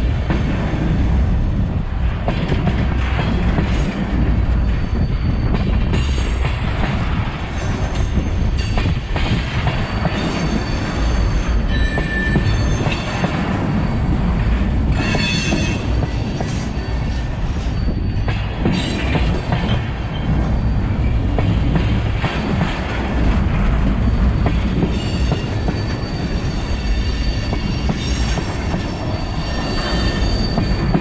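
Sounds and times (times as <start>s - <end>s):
freight train wheels rumbling: 0.0s - 31.0s
high-pitched wheel squeal: 10.3s - 13.3s, 15.0s - 15.9s, 24.9s - 31.0s.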